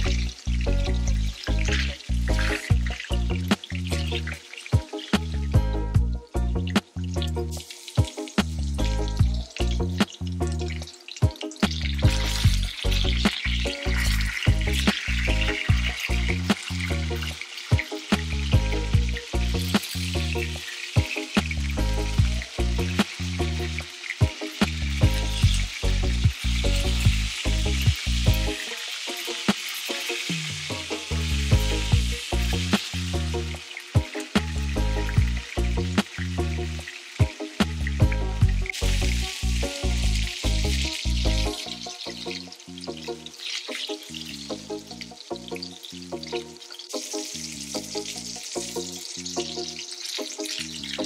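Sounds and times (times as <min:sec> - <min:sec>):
music with beat and strong bass: 0:00.0 - 0:28.6, 0:30.3 - 0:42.5
fish sizzling in hot oil: 0:00.0 - 0:51.0.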